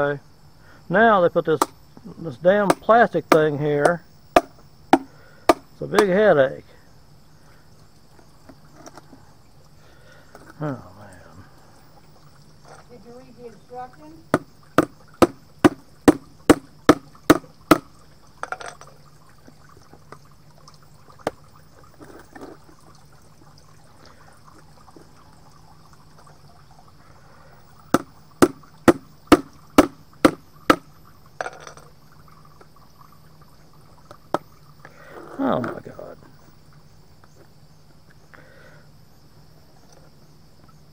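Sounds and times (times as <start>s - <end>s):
hammer tapping on paint can lid: 2.7s - 6.1s.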